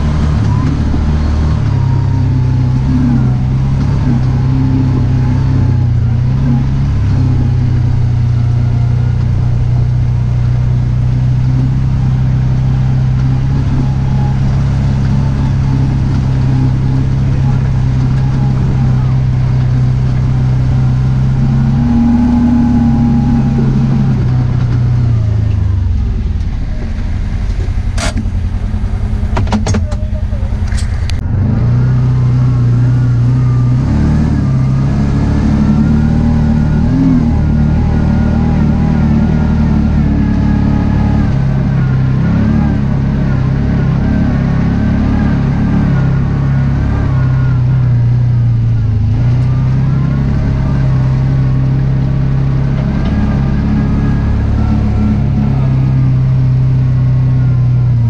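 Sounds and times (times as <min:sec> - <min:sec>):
engine running under load: 0:00.0 - 0:58.0.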